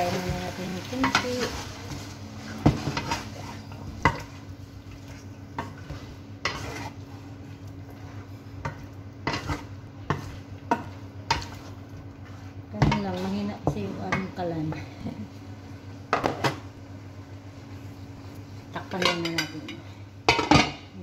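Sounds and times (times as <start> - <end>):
frying sizzle: 0.0 - 21.0
steady low hum: 0.0 - 21.0.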